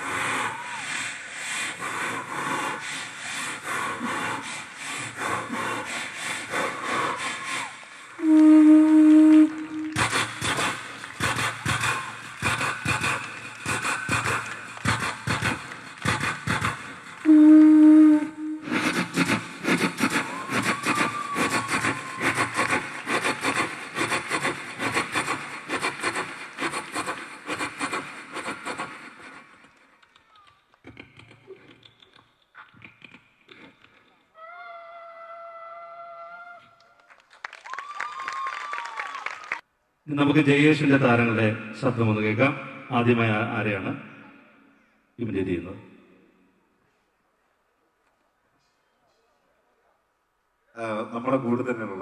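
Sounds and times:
rasping hissing vocal mimicry: 0.0s - 8.2s, 10.0s - 17.2s, 18.7s - 29.0s
imitated train whistle: 7.5s - 10.7s, 17.2s - 19.1s, 20.0s - 22.8s
mouth imitating train chugging: 8.2s - 29.6s.

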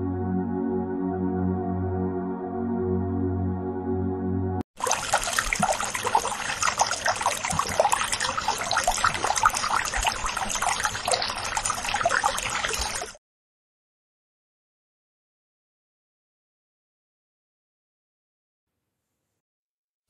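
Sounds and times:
water pouring into a glass: 4.8s - 13.2s.

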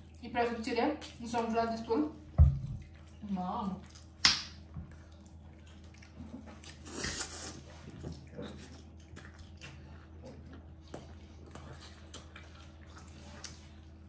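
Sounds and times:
people chewing and biting: 3.8s - 14.0s.

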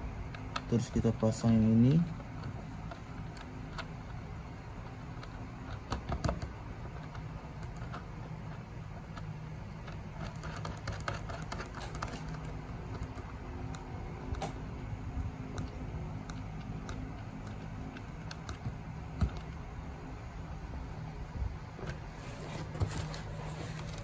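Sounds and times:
low steady hum: 0.0s - 24.0s
nut screwing clicks and scratches: 0.3s - 14.5s, 15.5s - 19.6s.

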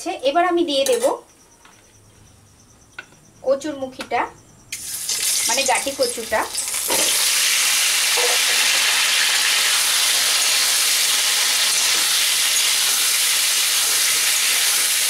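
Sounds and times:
food frying in oil: 4.8s - 15.0s.

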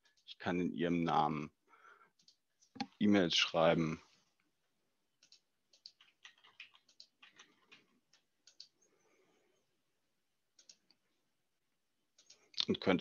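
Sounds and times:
keyboard typing: 2.1s - 3.0s, 5.2s - 8.9s, 10.5s - 11.0s, 12.2s - 12.5s.

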